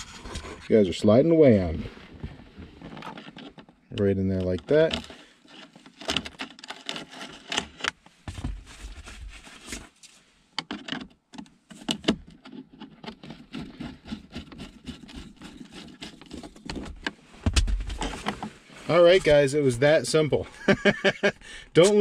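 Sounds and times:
screwdriver clicking and scraping: 10.6s - 17.2s.

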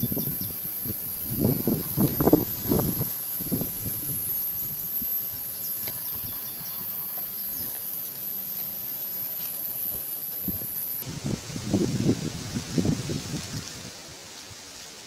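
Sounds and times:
insects buzzing: 0.0s - 11.1s.

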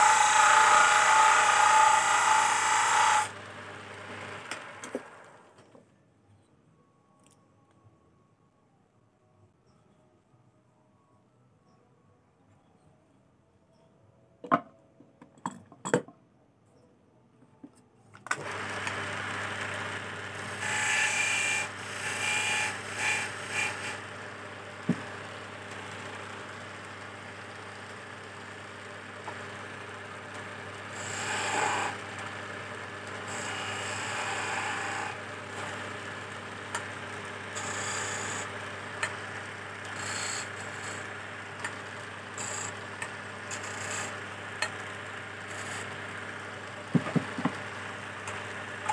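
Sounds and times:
chisel scraping spinning wood: 0.0s - 3.4s, 30.9s - 32.1s, 33.2s - 36.0s, 45.4s - 46.1s
lathe motor humming: 0.0s - 5.5s, 18.4s - 48.9s.

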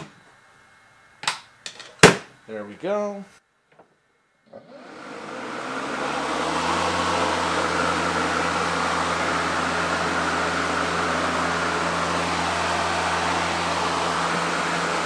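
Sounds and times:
electric lawnmower motor humming: 4.5s - 15.0s.

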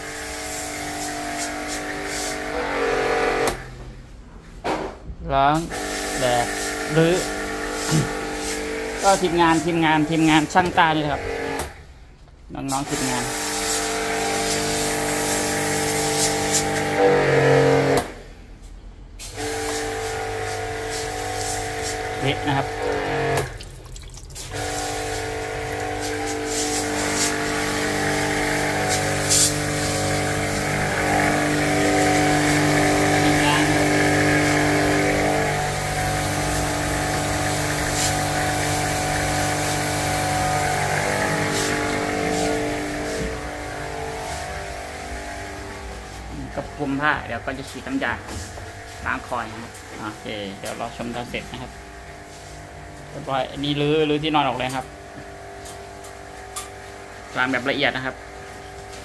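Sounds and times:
different steady hum: 0.0s - 59.0s
electric motor humming: 19.4s - 23.6s, 24.5s - 47.0s.

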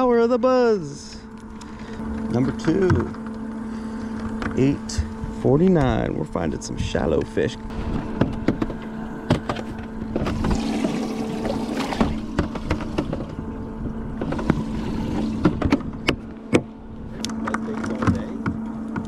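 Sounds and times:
steady boat hum: 0.0s - 19.0s.

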